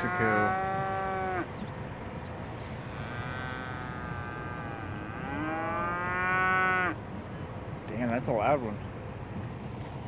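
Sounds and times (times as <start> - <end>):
cattle mooing: 0.0 - 1.5, 2.8 - 7.0.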